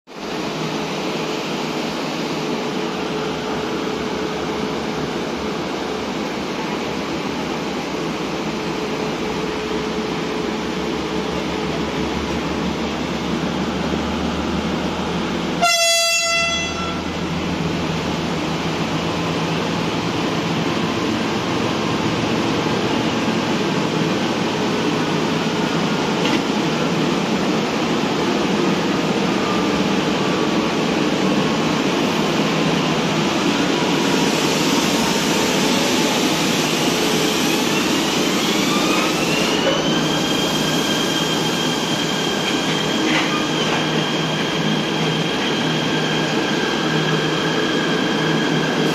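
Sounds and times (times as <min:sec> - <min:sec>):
train coaches rumbling past: 0:00.1 - 0:48.9
train horn blast: 0:15.6 - 0:17.2.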